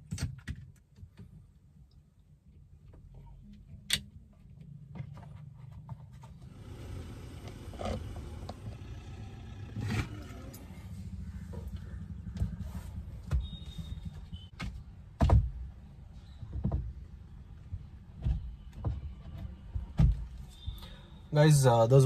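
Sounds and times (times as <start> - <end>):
plastic parts clicking and knocking: 0.0 - 1.5.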